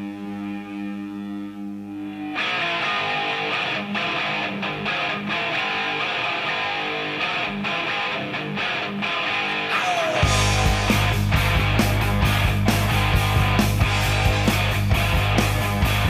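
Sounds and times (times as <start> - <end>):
band with strummed electric guitar: 2.1 - 16.0
held guitar chord: 9.5 - 16.0.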